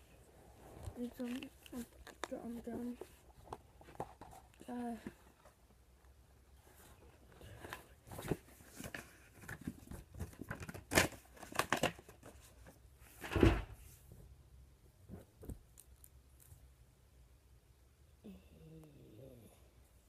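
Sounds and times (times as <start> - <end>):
book handling noise: 0.0 - 5.6, 6.6 - 13.5, 15.0 - 16.7.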